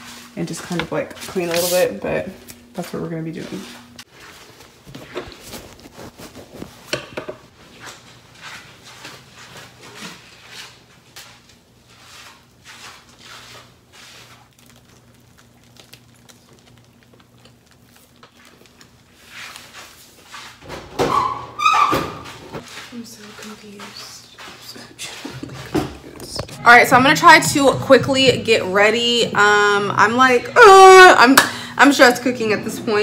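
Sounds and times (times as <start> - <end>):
paper rustling: 4.2 - 6.9, 10.0 - 20.6.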